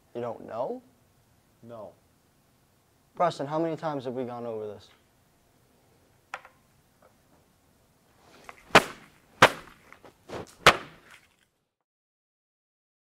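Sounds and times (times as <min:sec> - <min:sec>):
small knocks: 0:06.3 - 0:07.2
loud sharp bangs: 0:08.7 - 0:09.8, 0:10.6 - 0:11.1.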